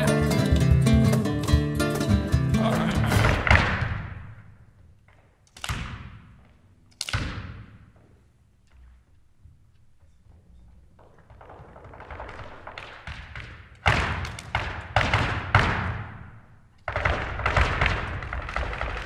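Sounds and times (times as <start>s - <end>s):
dancer's feet stamping on floor: 0.0s - 4.4s, 10.8s - 19.0s.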